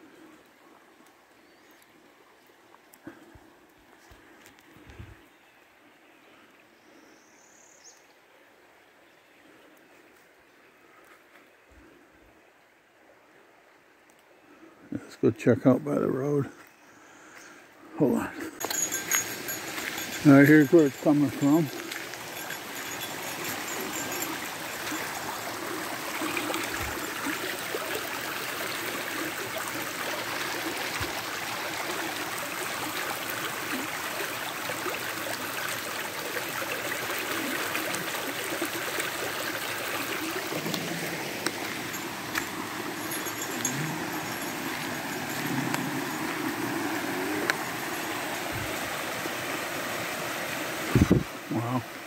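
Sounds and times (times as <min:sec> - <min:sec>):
stream rushing over rocks: 0:18.0 - 0:52.0.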